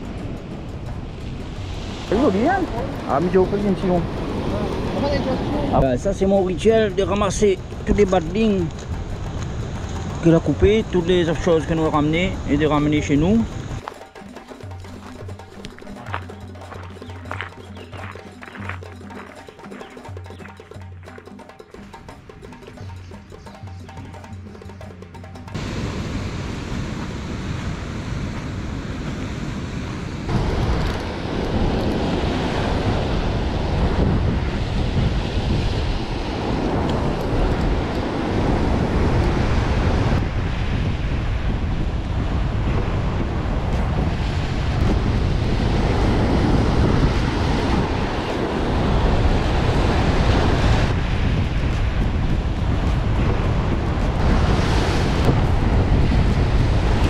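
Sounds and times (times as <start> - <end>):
wind buffeting microphone: 0.0 - 13.8, 25.5 - 57.0
sea waves breaking on rocks: 0.0 - 14.0, 25.5 - 57.0.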